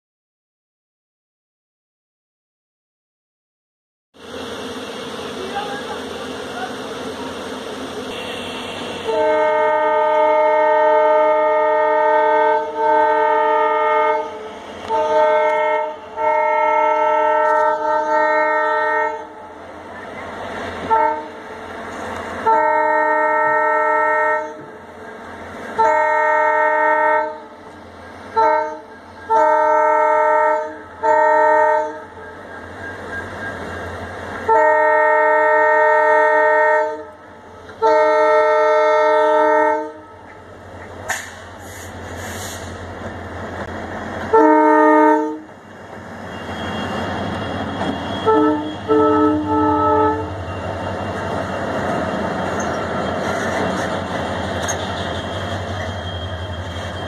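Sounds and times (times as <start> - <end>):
locomotive air horn: 7.9 - 19.4, 20.8 - 21.5, 22.4 - 24.7, 25.8 - 27.6, 28.3 - 32.2, 34.4 - 40.3, 44.2 - 45.5, 46.2 - 50.8.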